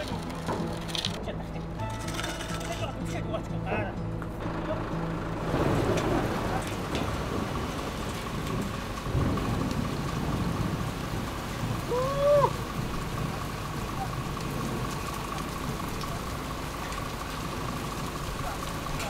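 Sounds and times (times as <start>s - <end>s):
heavy rain falling: 4.4s - 19.0s
thunder rumbling: 4.4s - 19.0s.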